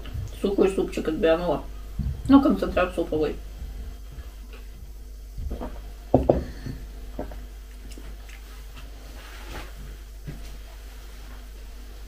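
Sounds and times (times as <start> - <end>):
mug knocking on table: 5.5 - 6.6.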